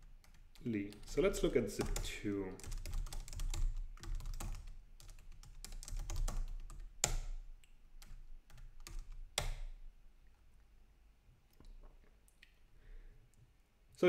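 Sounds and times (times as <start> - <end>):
laptop keyboard typing: 0.0 - 9.8.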